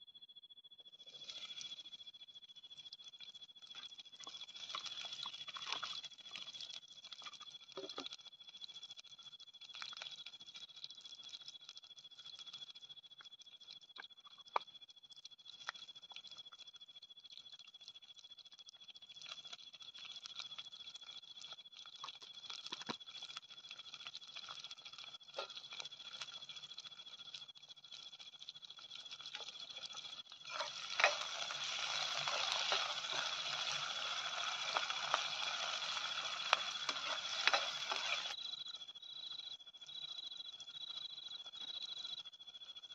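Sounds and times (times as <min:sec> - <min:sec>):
night insects trilling: 0:00.0 - 0:42.9.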